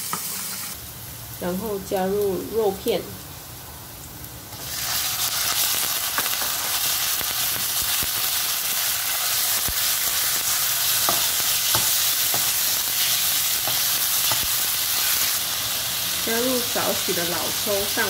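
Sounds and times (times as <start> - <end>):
meat sizzling in hot oil: 0.0 - 18.0
spatula tapping and scraping: 11.0 - 12.6.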